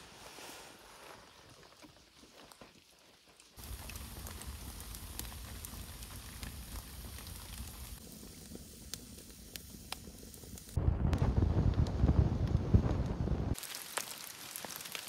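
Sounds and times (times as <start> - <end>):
fire crackles and pops: 3.5 - 15.0
wood fire burning in oven: 3.6 - 15.0.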